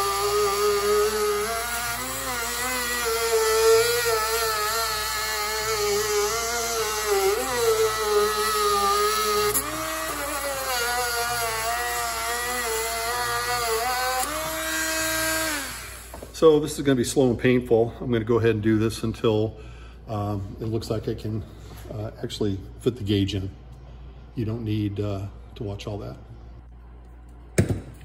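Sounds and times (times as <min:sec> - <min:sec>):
rotary tool grinding whine: 0:00.0 - 0:16.4.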